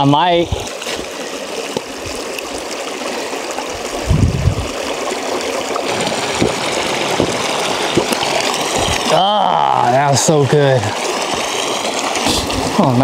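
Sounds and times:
stream water running: 0.0 - 13.0.

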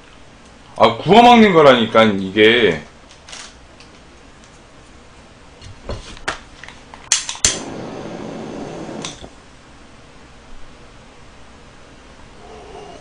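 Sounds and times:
torch ignition clicks: 6.7 - 9.4
torch flame hissing: 7.2 - 9.4.

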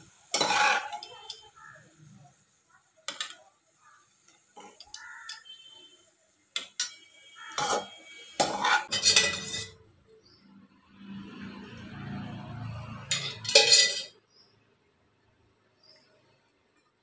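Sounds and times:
metal pots and utensils clanking: 0.0 - 1.5, 3.1 - 3.5, 4.2 - 5.5, 6.5 - 9.8, 12.9 - 14.2.

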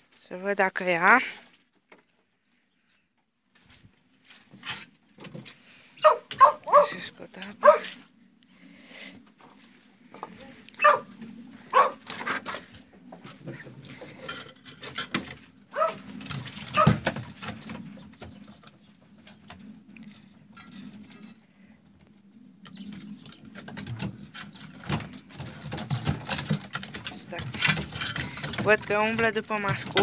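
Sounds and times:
rabbits shuffling on wooden floor: 23.0 - 30.0.

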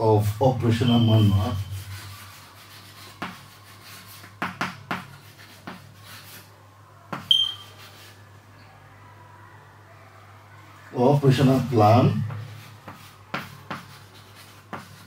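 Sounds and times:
chalk tapping and scraping: 1.1 - 6.5, 7.1 - 8.2, 11.6 - 15.0
high chalk squeak: 7.2 - 8.2.

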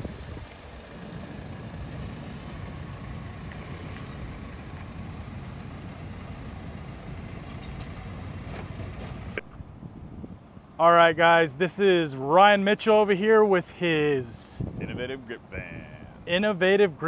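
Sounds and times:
low motor vehicle rumble: 0.0 - 10.8.

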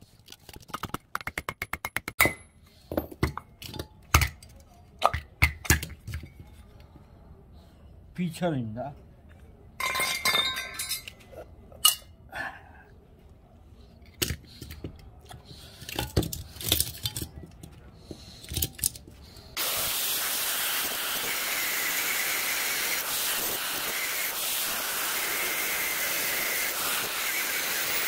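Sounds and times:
metal knocks and clinks: 9.8 - 11.2
angle grinder cutting metal: 19.6 - 28.0.

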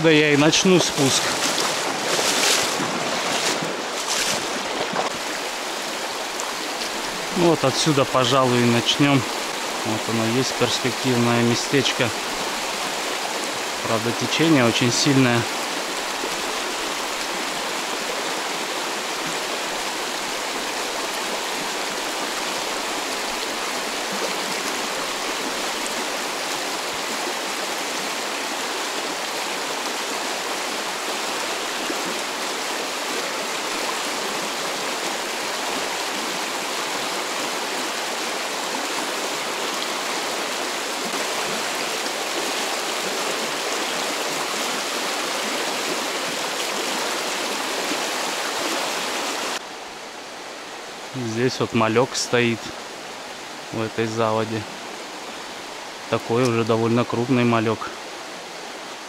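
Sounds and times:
river rushing: 0.0 - 59.0.

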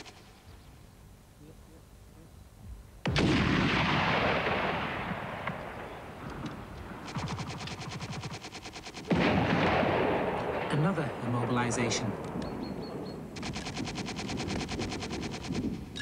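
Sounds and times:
fast even rattle of shots: 0.0 - 0.3, 7.0 - 11.7, 13.4 - 15.9
gun firing with rolling echo: 3.0 - 15.8.

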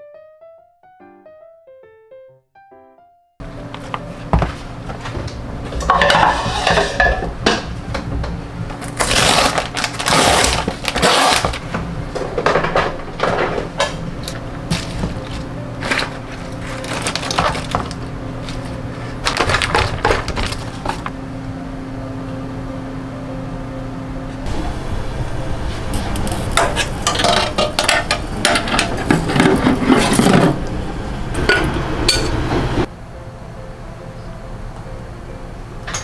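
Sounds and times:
steady low hum: 3.4 - 36.0
plastic packaging crinkling: 8.8 - 11.7, 14.7 - 21.1.

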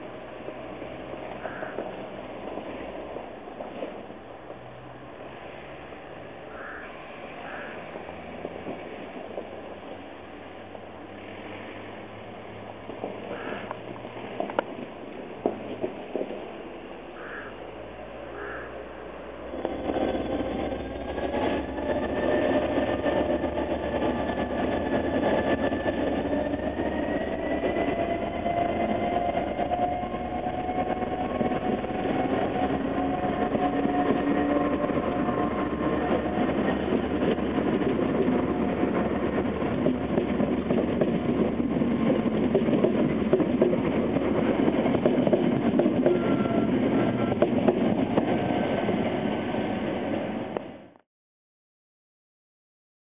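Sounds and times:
diesel locomotive engine passing: 0.0 - 51.0
train wheels rushing on rails: 0.0 - 51.0.

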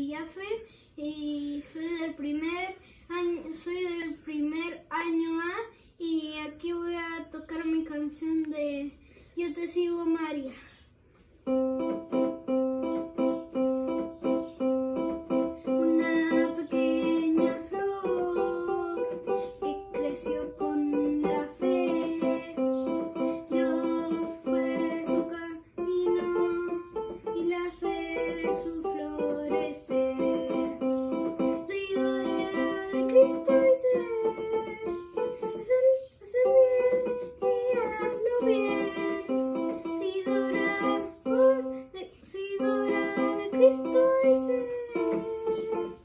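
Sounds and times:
electronic keyboard melody: 11.4 - 46.0.

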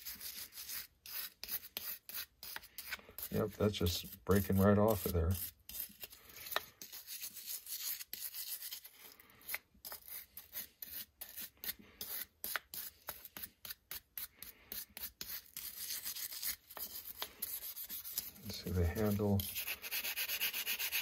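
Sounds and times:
wire brush scrubbing steel: 15.4 - 21.0.

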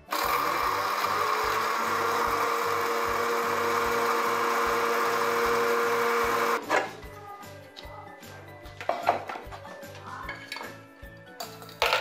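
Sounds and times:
electric mixer grinder whirring: 0.0 - 6.8.

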